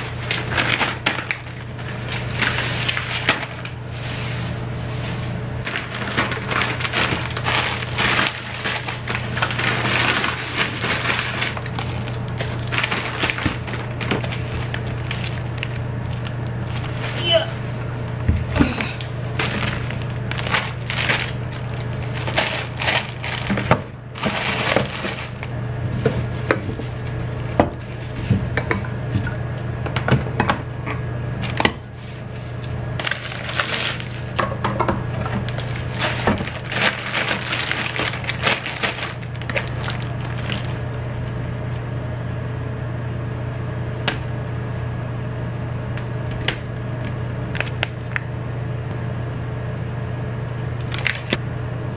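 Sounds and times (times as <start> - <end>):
plastic packets rustling: 0.0 - 17.4, 18.6 - 27.1, 31.4 - 34.5, 35.1 - 40.9
steady low hum: 0.0 - 51.9.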